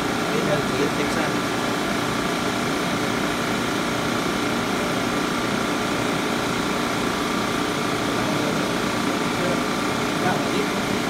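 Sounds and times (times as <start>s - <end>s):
recovery machine humming: 0.0s - 11.0s.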